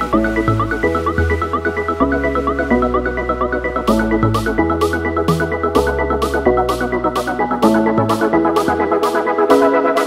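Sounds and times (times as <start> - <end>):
electronic synth music: 0.0 - 10.0.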